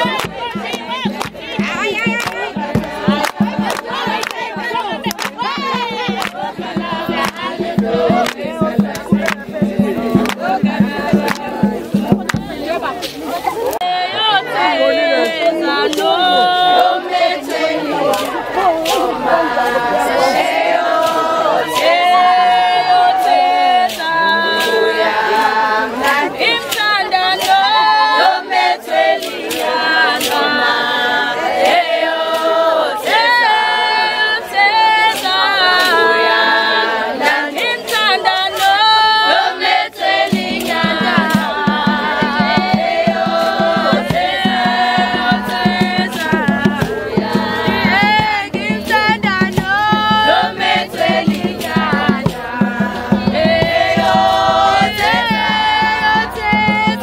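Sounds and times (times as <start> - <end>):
sharp percussive hits: 0.0 - 13.2, 39.4 - 57.0
low pulsing beat: 0.0 - 13.5, 14.9 - 57.0
crowd singing in harmony: 0.0 - 57.0.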